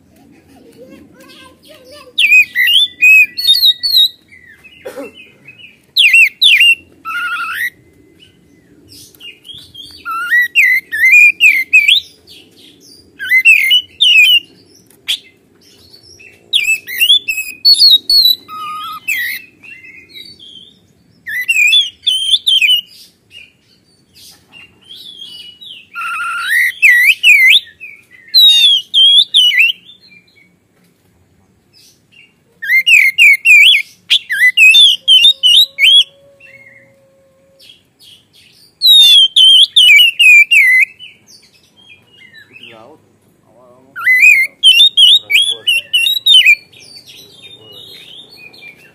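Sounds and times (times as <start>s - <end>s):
songbird singing whistled phrases: 1.6s - 4.6s, 5.6s - 8.4s, 9.1s - 12.2s, 12.8s - 15.3s, 16.2s - 23.5s, 24.9s - 30.5s, 32.2s - 37.0s, 38.7s - 42.8s, 43.9s - 48.9s.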